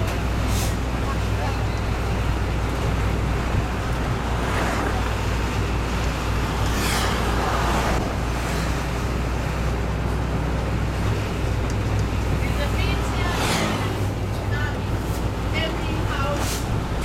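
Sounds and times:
bus rumbling: 0.0 - 17.0
road noise: 0.0 - 17.0
loud rushing noise: 3.6 - 9.2, 12.4 - 14.3.

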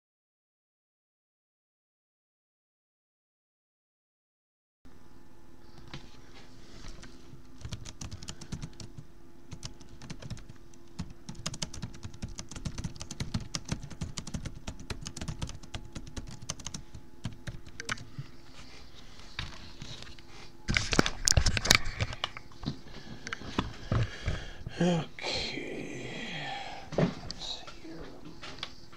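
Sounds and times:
laptop keyboard typing: 6.9 - 18.2.

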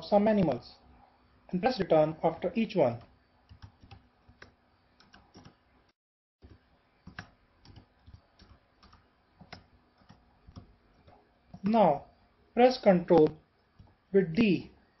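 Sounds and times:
keyboard typing: 2.2 - 5.6, 6.4 - 11.8.

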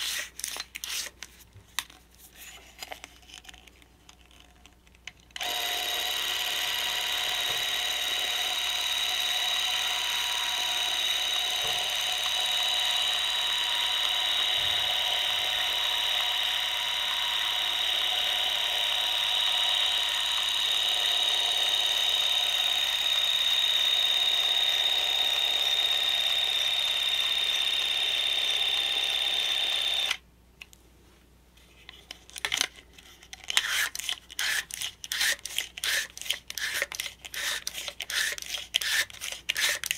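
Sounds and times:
cine camera clockwork whir: 5.4 - 30.2.

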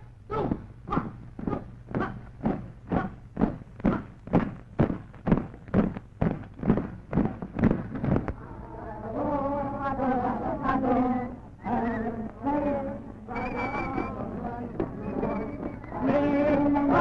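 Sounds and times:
low hum: 0.0 - 17.0
marching beat: 0.4 - 8.3.

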